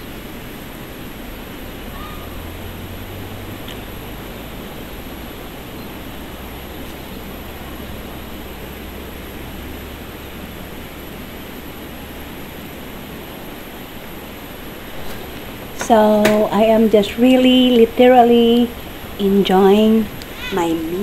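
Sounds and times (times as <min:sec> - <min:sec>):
river water rushing: 0:00.0 - 0:21.0.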